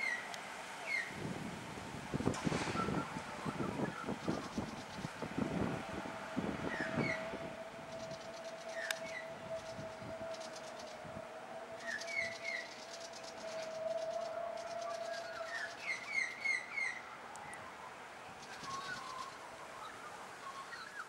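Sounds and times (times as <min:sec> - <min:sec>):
birds chirping: 0:11.7 - 0:21.0.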